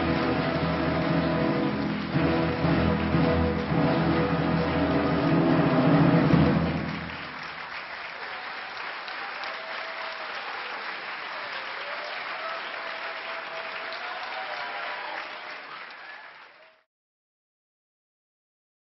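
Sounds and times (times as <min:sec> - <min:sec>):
orchestral music: 0:00.0 - 0:07.5
audience applauding: 0:00.0 - 0:16.9
faint cheer: 0:06.7 - 0:16.9.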